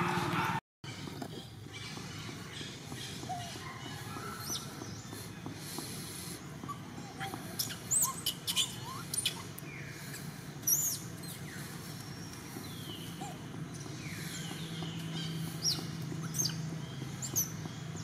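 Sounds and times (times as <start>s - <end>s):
animal squeaks and chirps: 6.7s - 9.5s, 15.2s - 17.5s.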